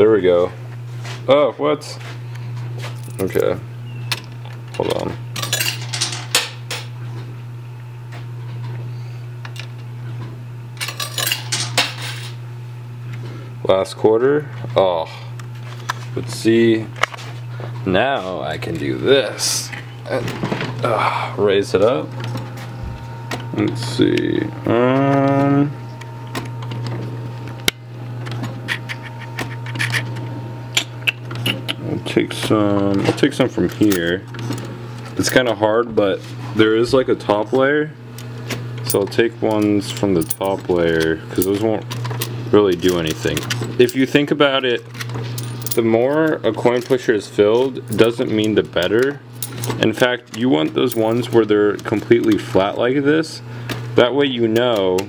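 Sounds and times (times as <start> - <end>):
machine low hum: 0.0 - 55.0
coins clinking: 5.4 - 6.9, 10.8 - 12.4, 38.8 - 40.7, 41.4 - 44.2, 45.0 - 46.0, 46.8 - 50.0, 50.6 - 51.4
coins clinking and sliding: 5.4 - 6.9, 10.8 - 12.4, 39.9 - 40.6, 45.0 - 45.8, 47.8 - 48.2.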